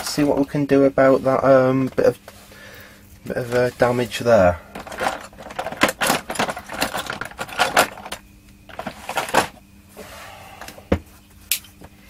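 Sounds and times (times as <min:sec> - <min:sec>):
tools rattling and clicking: 0:04.7 - 0:09.6.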